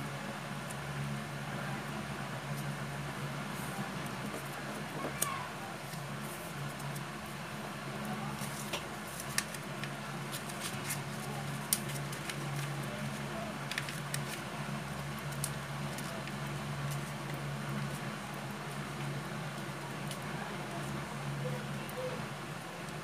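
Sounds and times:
paper rustling and crinkling: 0:08.2 - 0:18.1.

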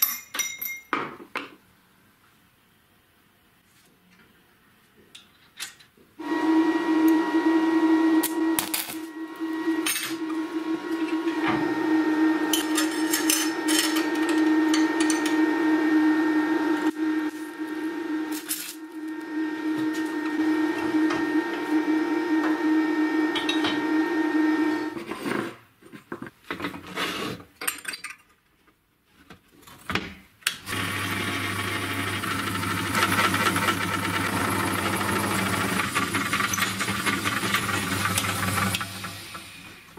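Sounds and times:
drill press drilling steel: 0:06.2 - 0:25.0, 0:30.6 - 0:39.7
electric welding crackling buzz: 0:08.1 - 0:21.0.

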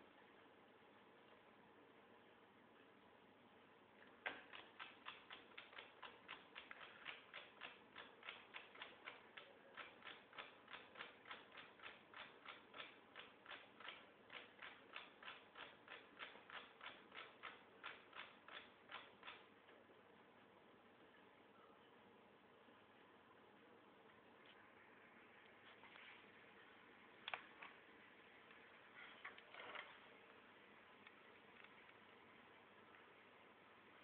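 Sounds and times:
faint rapid ticking: 0:04.3 - 0:19.5.

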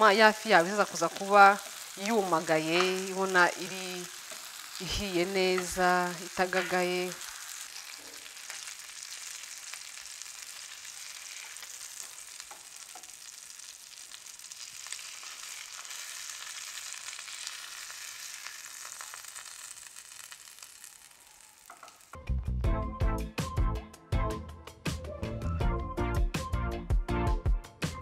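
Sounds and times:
fish sizzling in a frying pan: 0:00.0 - 0:22.2
spatula scraping: 0:05.6 - 0:08.7
music: 0:22.2 - 0:28.0.

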